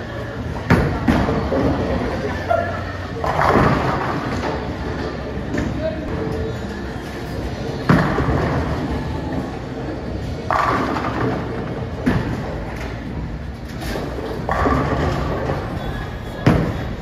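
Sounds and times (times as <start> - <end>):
bowling balls rolling: 0.5 - 6.3, 7.6 - 17.0
bowling pins crashing: 14.0 - 17.0.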